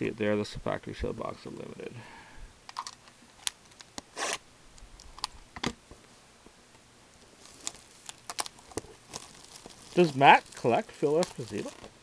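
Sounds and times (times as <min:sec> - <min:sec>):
wrapper crinkling and clicks: 0:02.7 - 0:04.0, 0:07.2 - 0:12.0
shrink wrap ripping: 0:07.4 - 0:12.0.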